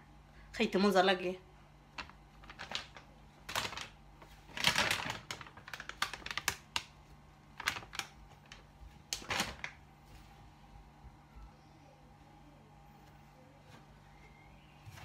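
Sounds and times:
plastic bag crackling: 1.9s - 10.0s.

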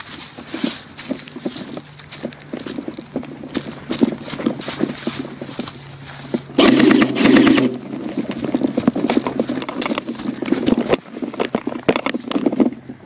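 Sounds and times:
footsteps crunching dry leaves: 0.0s - 12.8s
loud rattling burst: 6.5s - 10.9s.

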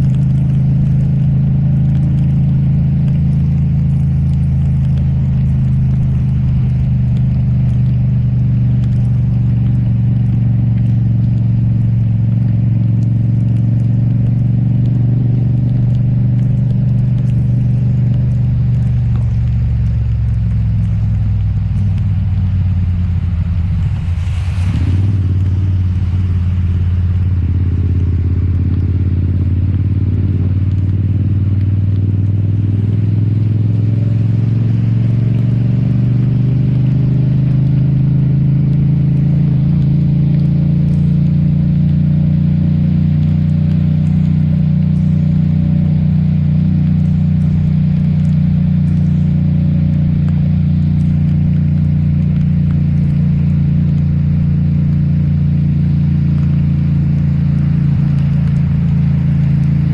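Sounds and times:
motorcycle engine running: 0.0s - 59.9s
short hissing rush: 23.7s - 26.9s.

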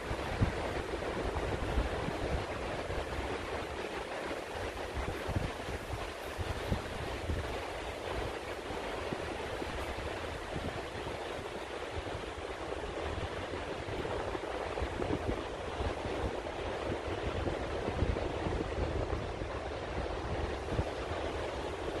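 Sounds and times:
ocean surf breaking on beach: 0.0s - 22.0s.

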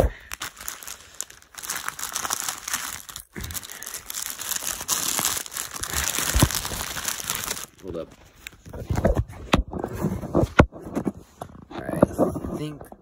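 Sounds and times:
plastic mailer bag crinkling: 0.1s - 8.0s.

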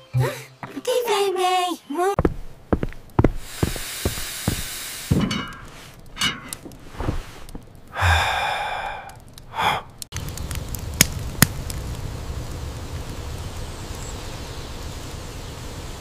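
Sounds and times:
steady outdoor hiss: 0.0s - 16.0s
cartoon character sighing and gasping: 8.0s - 9.9s.

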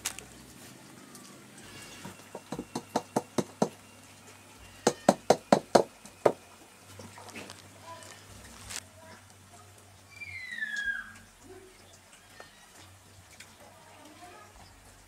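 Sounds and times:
basket knocking on cooking pot: 2.0s - 3.8s, 4.8s - 6.4s.

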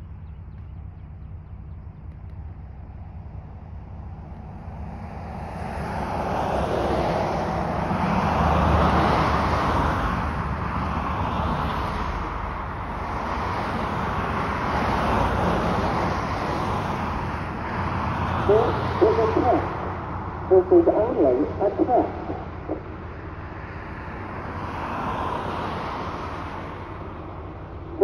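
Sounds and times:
warning siren test tone: 18.5s - 19.9s, 20.5s - 22.9s.

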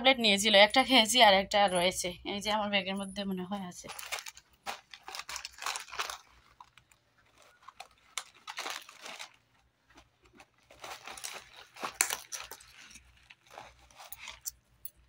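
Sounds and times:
rummaging through cloth handbag: 3.1s - 15.0s.

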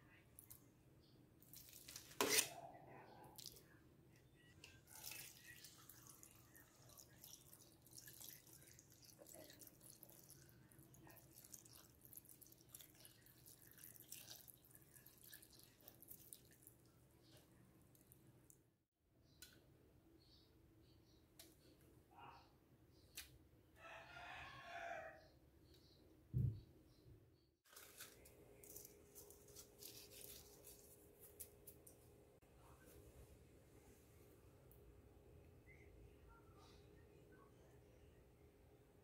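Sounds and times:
milk trickling and splashing: 4.6s - 17.0s.

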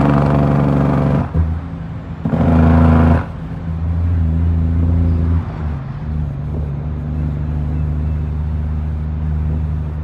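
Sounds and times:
truck diesel engine running: 0.0s - 5.2s.

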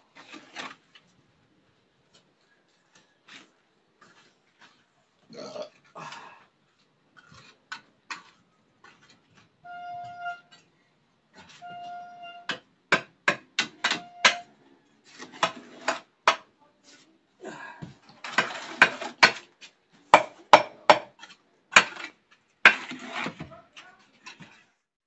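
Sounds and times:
trowel scraping mortar: 0.1s - 1.0s, 2.1s - 5.0s, 6.7s - 10.7s, 13.6s - 16.1s, 17.8s - 24.8s
trowel tapping on blocks: 12.5s - 14.4s, 20.1s - 23.4s.

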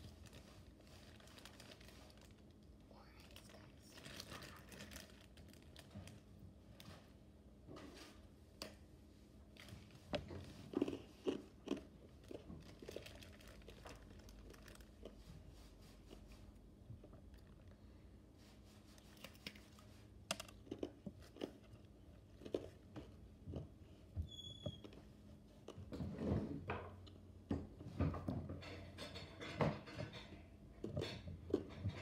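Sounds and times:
person eating crunchy snack: 10.5s - 15.3s, 20.4s - 23.7s.

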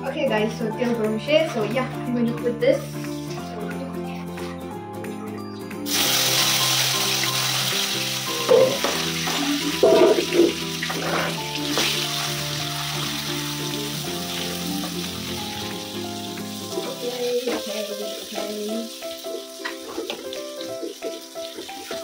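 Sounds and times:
vegetables sizzling in hot oil: 5.9s - 22.0s.

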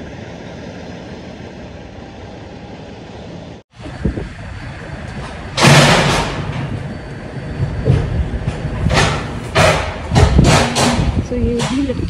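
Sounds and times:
pallet jack rolling and clattering: 4.6s - 12.0s.

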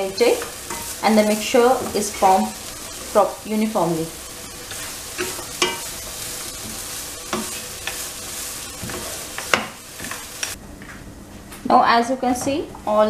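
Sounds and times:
steady sizzle: 0.0s - 10.6s
wooden spatula scraping a pan: 4.2s - 10.6s.

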